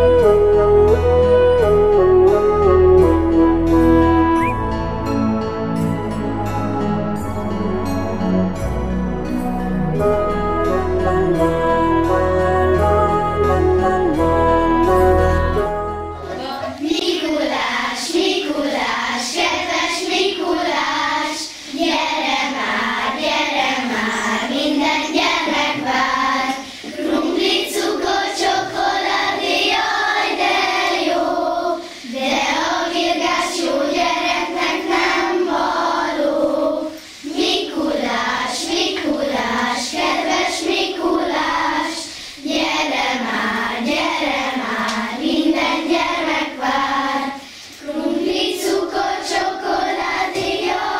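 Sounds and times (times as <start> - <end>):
children singing: 10.2 - 50.9.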